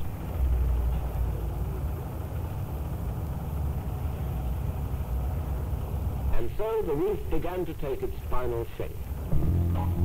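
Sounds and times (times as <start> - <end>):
low rumble of machinery: 0.0 - 10.0.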